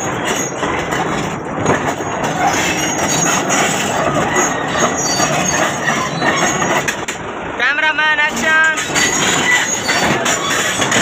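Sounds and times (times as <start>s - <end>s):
heavy diesel machinery running: 0.0s - 11.0s.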